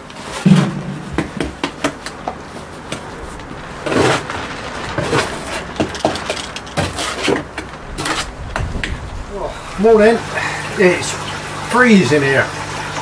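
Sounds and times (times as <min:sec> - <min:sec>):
heavy thump on microphone: 0:00.4 - 0:01.8
handling knocks and clicks: 0:00.4 - 0:09.0.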